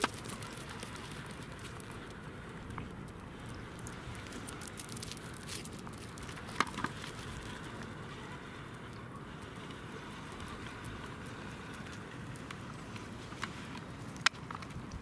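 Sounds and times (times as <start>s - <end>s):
dog claws clicking on ice: 0.0s - 2.1s.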